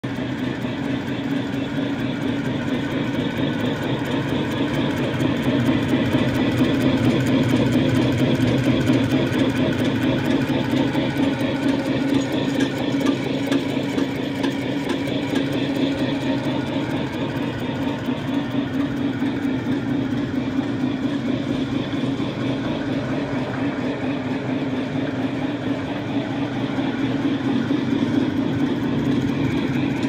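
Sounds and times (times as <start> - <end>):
fast continuous machine clatter: 0.0 - 30.0.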